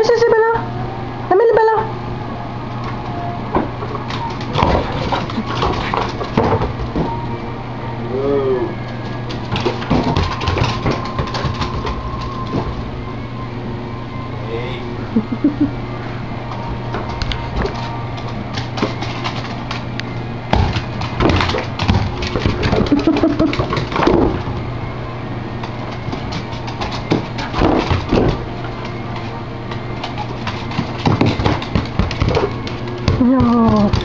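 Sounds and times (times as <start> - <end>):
steady low hum: 0.0 - 34.0
dog claws clicking on floor: 9.3 - 12.7, 17.2 - 20.0, 25.6 - 34.0.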